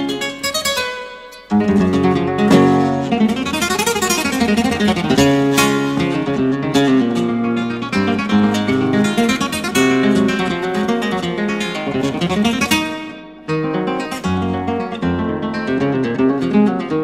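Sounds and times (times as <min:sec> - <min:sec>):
flamenco guitar playing: 0:00.0 - 0:17.0.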